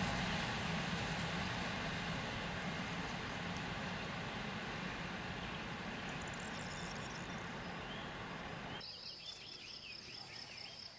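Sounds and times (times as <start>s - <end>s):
distant train rumbling: 0.0s - 8.8s
birds chirping: 2.6s - 10.9s.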